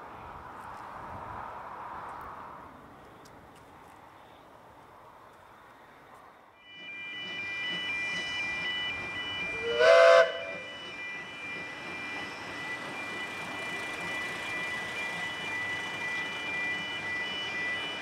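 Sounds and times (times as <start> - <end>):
locomotive whistle blast: 9.3 - 10.9.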